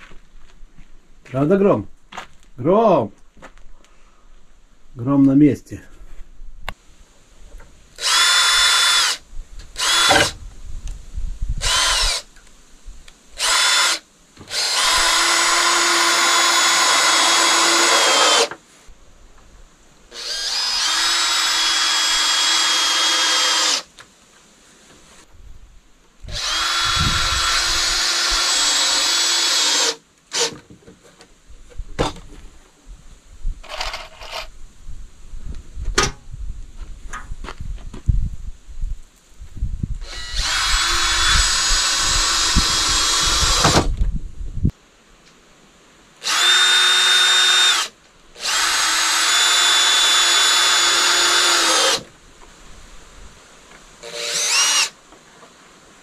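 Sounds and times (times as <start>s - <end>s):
cordless drill driving screws: 8.0s - 9.2s, 9.8s - 10.4s, 11.6s - 12.3s, 13.4s - 18.6s, 20.2s - 23.9s, 26.3s - 30.6s, 40.0s - 43.9s, 46.2s - 52.1s, 54.0s - 55.0s.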